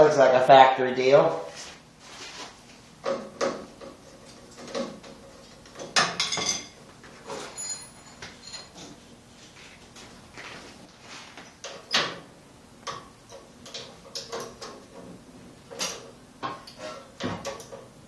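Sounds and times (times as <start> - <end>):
hand tools clinking: 6.2 - 9.0.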